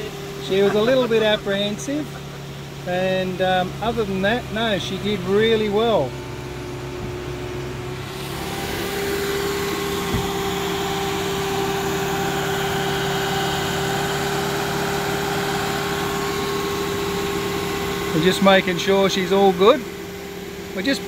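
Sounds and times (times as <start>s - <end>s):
engine and hydraulics humming: 0.0s - 21.0s
short thump: 10.0s - 10.6s.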